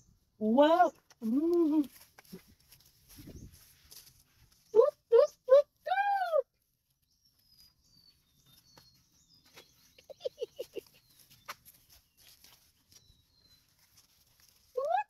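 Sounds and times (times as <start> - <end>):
faint bird chirps: 7.0 - 14.2.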